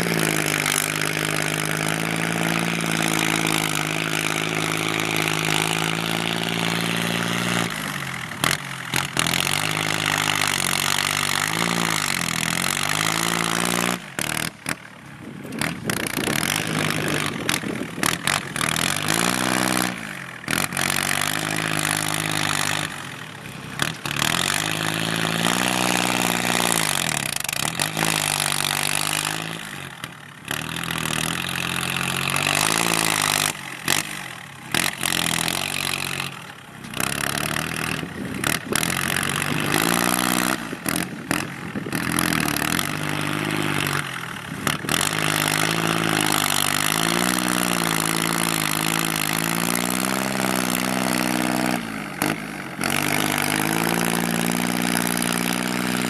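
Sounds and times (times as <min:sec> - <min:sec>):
tractor diesel engine revving: 0:00.0 - 0:56.0.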